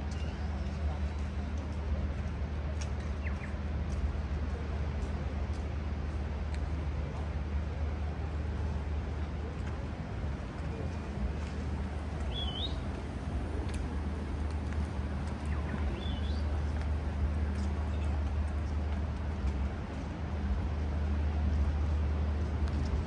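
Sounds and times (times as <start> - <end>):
outdoor noise: 0.0 - 23.0
bird chirps: 12.3 - 12.8.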